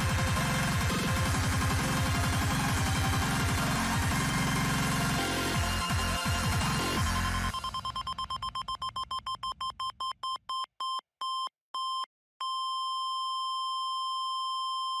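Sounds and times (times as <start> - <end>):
electronic music: 0.0 - 8.5
electronic beeps: 7.4 - 15.0.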